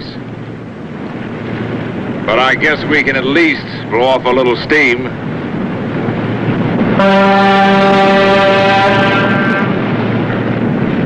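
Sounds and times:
engine and sea noise: 0.0 - 11.0
ship's whistle blast: 7.0 - 9.8.

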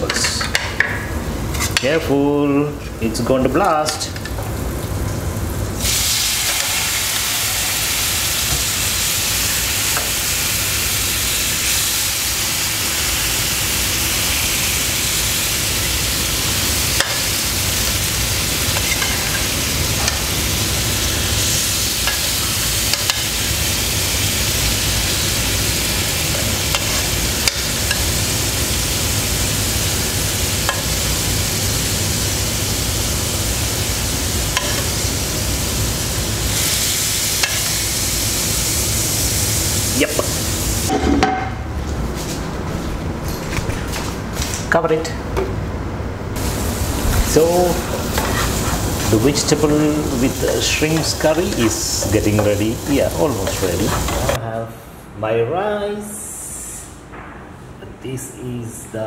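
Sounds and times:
food sizzling in a frying pan: 4.3 - 41.0, 46.4 - 54.4.

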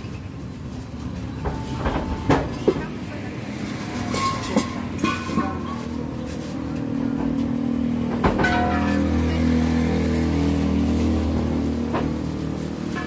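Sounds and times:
metal gas cylinders clanking: 3.8 - 6.1, 8.0 - 9.3
vehicle engine running: 5.6 - 13.0.

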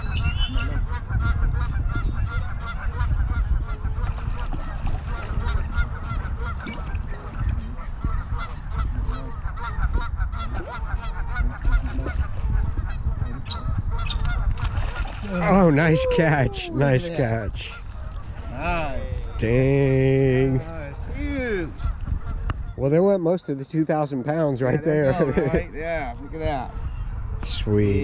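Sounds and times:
steady low rumble: 0.0 - 22.9
geese honking: 0.1 - 19.8.

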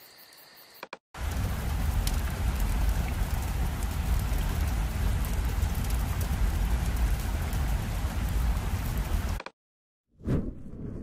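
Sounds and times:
fire crackling: 1.2 - 9.4.

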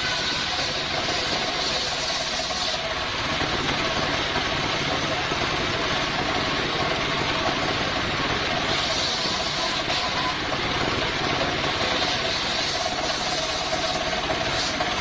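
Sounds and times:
diesel engine running: 0.0 - 15.0
saw blade spinning: 0.0 - 15.0
high hiss: 11.7 - 15.0.

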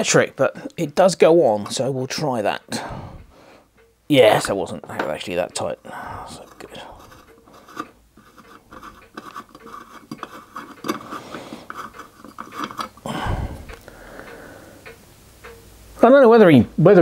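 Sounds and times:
metal fitting clicking and scraping: 6.3 - 13.1.

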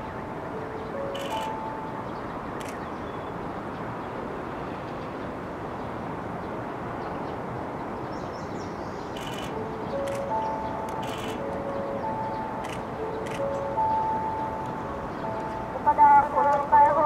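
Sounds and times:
faint bird chirp: 8.1 - 14.0.

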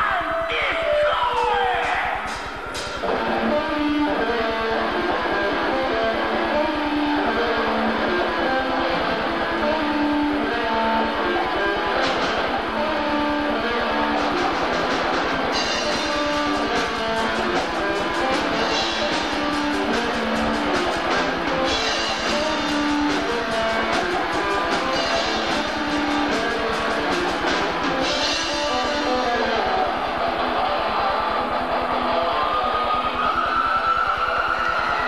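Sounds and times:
electric guitars: 0.0 - 35.0
drum kit: 1.4 - 30.8
cymbals: 13.6 - 29.6.

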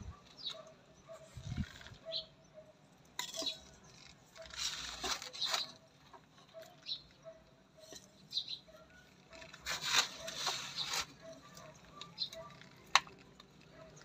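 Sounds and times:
trowel scraping soil: 3.2 - 6.0, 9.3 - 13.1.

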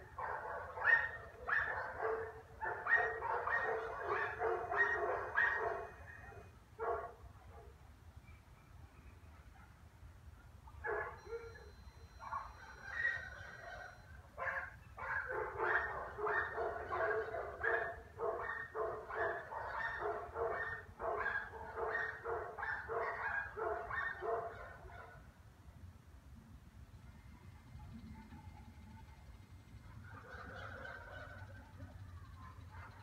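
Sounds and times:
dog barking: 0.0 - 7.8, 10.4 - 25.3, 29.8 - 33.0.

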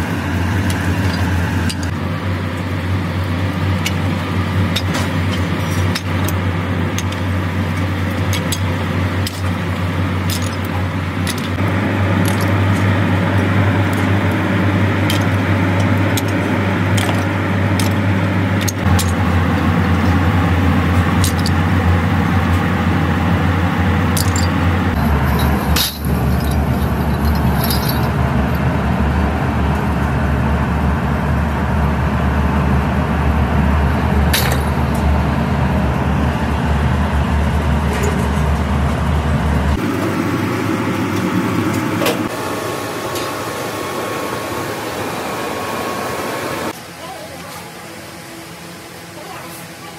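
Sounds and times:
low machinery hum: 0.0 - 49.9
scrap metal clinking and clattering: 3.8 - 13.0, 24.1 - 28.1.

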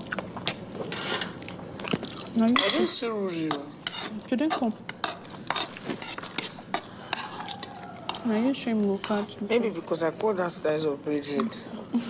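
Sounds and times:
cutlery clinking and scraping: 2.5 - 8.3.

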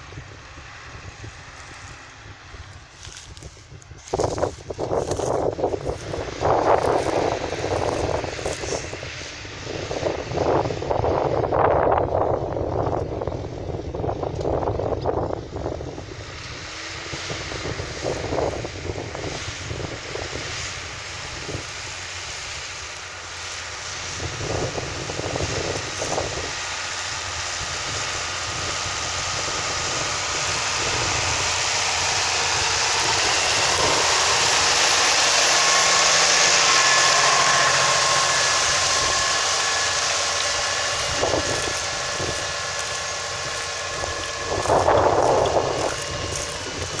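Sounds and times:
steady high whine: 0.0 - 47.0
tractor diesel engine under load: 0.0 - 47.0.

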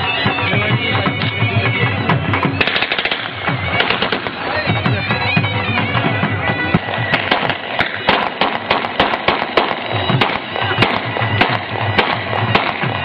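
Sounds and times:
loud music: 0.0 - 13.0
gunshots fired into the air: 2.6 - 4.4, 7.2 - 13.0.

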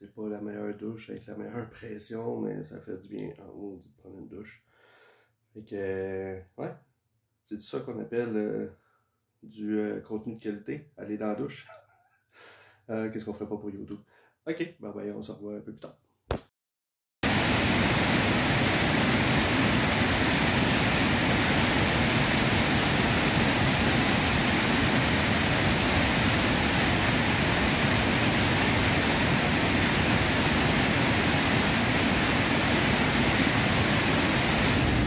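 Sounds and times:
waterfall and rapids over rocks: 17.3 - 35.0.

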